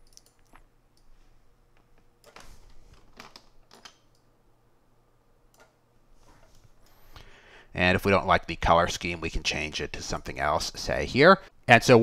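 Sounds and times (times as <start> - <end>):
computer mouse clicks: 0.0 - 1.1.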